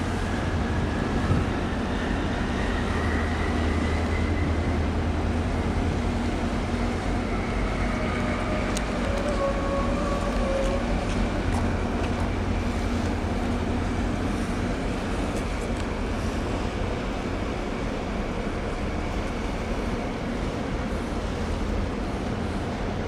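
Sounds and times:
wind noise: 0.0s - 4.5s
ship engines rumbling: 0.0s - 23.0s.

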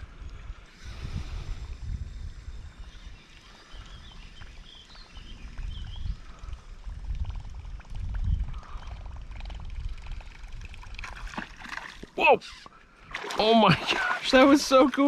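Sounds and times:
wind rumble on microphone: 0.0s - 12.1s
faint fine ticking: 0.1s - 11.0s
bird chirps: 2.7s - 6.2s.

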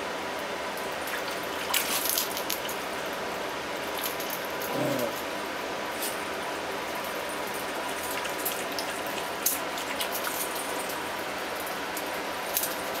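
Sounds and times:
water stream splashing into bowl: 7.6s - 11.0s.

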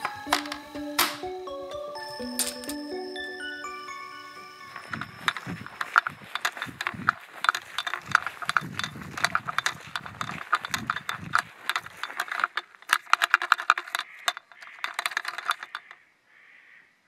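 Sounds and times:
saw rattling in plastic holster: 4.6s - 16.0s.

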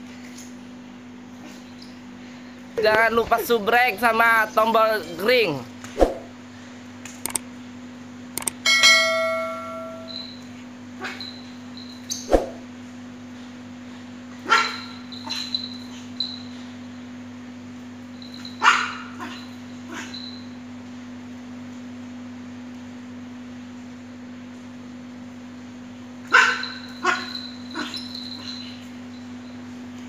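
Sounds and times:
small dog barking: 14.4s - 15.4s, 18.6s - 20.1s, 26.3s - 28.5s.

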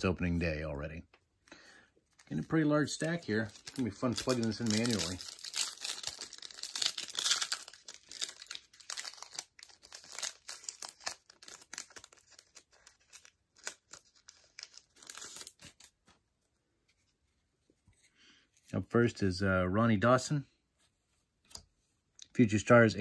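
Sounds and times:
wrapper tearing and crinkling: 2.2s - 15.9s.

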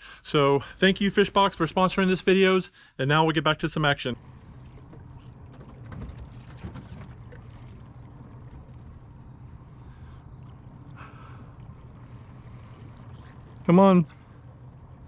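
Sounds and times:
boat low hum: 0.0s - 2.5s, 3.1s - 15.0s
water noise: 3.2s - 15.0s
water splashes: 3.7s - 15.0s.

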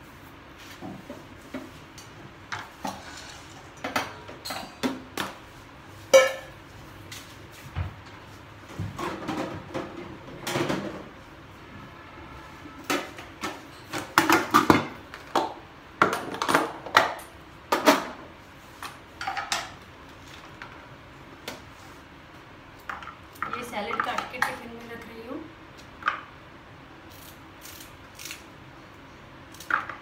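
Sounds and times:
kitchen utensils clattering: 2.6s - 5.1s.

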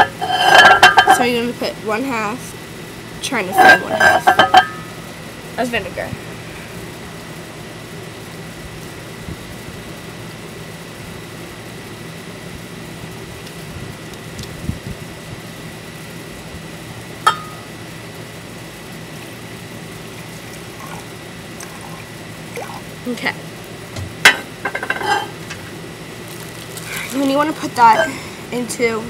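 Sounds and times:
low mechanical hum: 0.0s - 29.0s
liquid pouring into glass cup: 20.6s - 22.9s.

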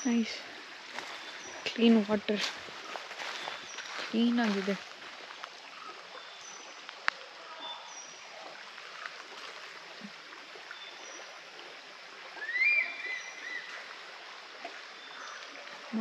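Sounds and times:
small birds chirping: 0.0s - 9.1s
stream running: 0.0s - 16.0s.

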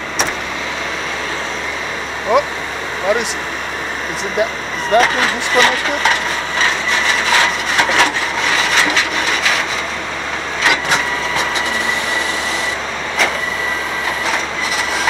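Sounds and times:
high whine: 0.0s - 14.8s
truck engine running: 0.0s - 15.0s
metallic clanks and rattles: 4.9s - 9.8s.

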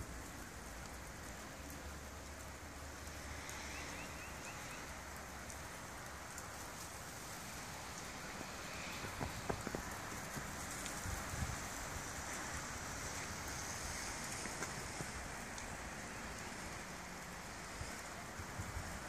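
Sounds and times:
snow dripping from branches: 0.0s - 19.0s
soft thumps of snow: 8.4s - 11.5s.

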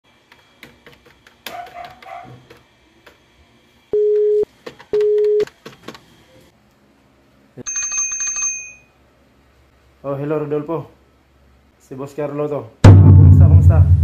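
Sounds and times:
telephone tones: 4.0s - 5.5s.

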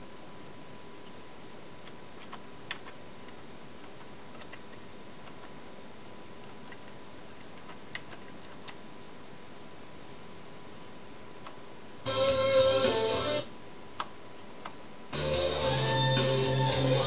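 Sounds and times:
amplifier hiss: 0.0s - 17.0s
small irregular clicks: 1.8s - 5.6s, 6.4s - 8.8s, 14.0s - 14.8s.

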